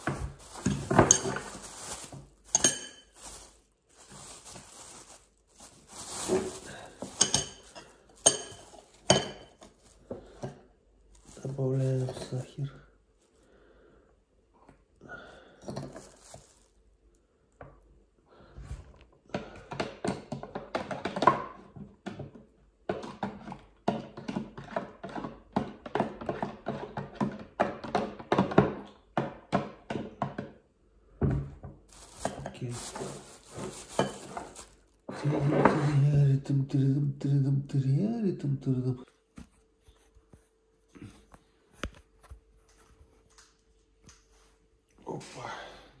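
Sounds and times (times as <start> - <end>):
plastic bag crinkling: 0.0 - 10.2, 11.0 - 13.3, 15.8 - 17.2, 31.9 - 35.2
man speaking: 11.4 - 12.8, 32.3 - 33.2, 35.2 - 39.1, 45.0 - 45.8.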